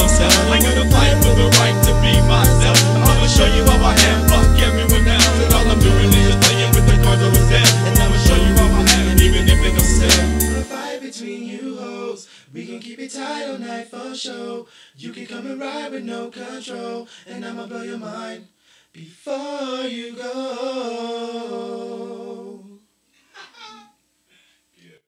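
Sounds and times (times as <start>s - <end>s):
hip hop beat: 0.0s - 11.0s
person singing unaccompanied: 0.0s - 22.8s.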